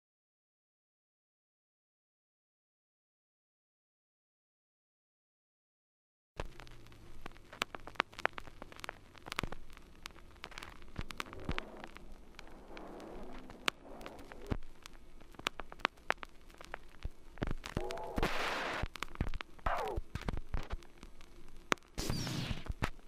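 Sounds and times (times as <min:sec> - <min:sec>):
sharp clicks crackles and pops: 0:06.4 - 0:23.0
falling tone: 0:10.9 - 0:14.7
short hiss: 0:18.0 - 0:18.9.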